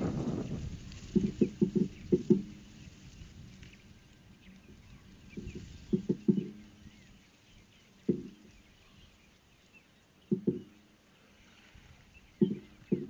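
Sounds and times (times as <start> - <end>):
birds chirping faintly: 0.0 - 13.0
hollow knocks: 1.0 - 2.7, 5.3 - 6.8, 8.0 - 8.6, 10.3 - 10.8, 12.4 - 13.0.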